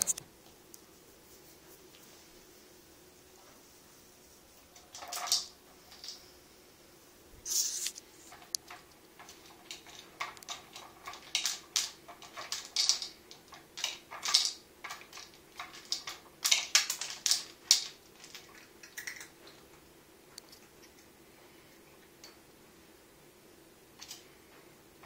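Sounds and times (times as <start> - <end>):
plastic tubes rattling: 4.8 - 6.3, 7.5 - 19.3
dry kibble clicking: 7.8 - 21.1.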